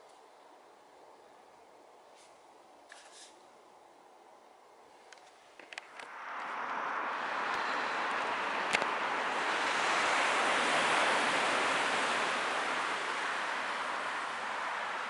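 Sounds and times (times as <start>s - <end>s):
coastal wind: 4.1s - 15.0s
surf rushing: 6.1s - 15.0s.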